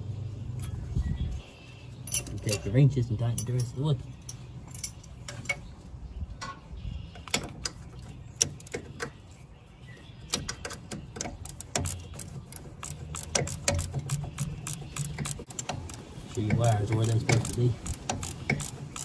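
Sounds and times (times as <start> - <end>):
ratchet wrench clicking: 10.5 - 19.0.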